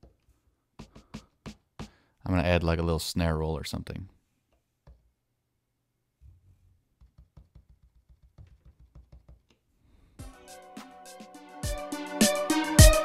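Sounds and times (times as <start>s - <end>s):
fingers tapping rubber pads: 0.8s - 2.0s, 7.0s - 9.6s.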